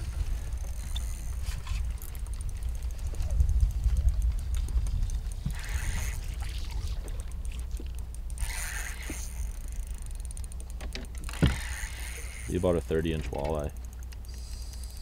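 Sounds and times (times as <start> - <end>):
wind rumble on microphone: 0.0 - 8.0
water lapping at boat: 0.0 - 15.0
fishing reel clicking: 0.1 - 15.0.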